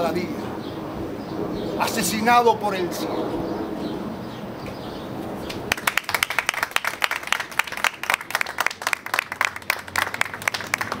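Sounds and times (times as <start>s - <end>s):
crowd applauding: 5.7s - 11.0s.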